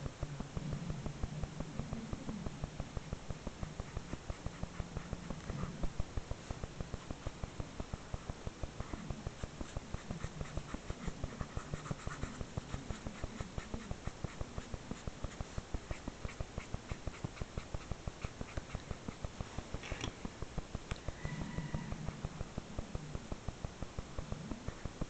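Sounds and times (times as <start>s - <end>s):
marker scratching on paper: 3.4s - 7.4s, 8.1s - 19.4s.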